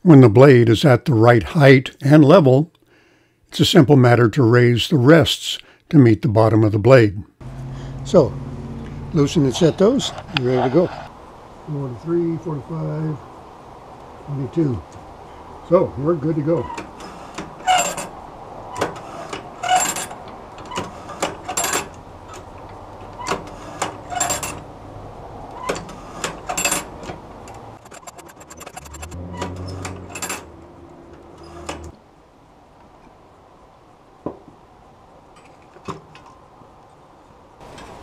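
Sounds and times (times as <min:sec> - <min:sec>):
low hum: 0:07.4 - 0:11.1, 0:27.3 - 0:32.0
metal tools clinking: 0:24.1 - 0:24.6, 0:25.7 - 0:30.6.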